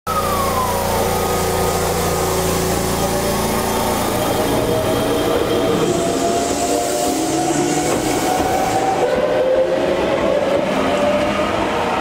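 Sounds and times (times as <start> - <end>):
traction motor whine rising: 0.1 - 9.4.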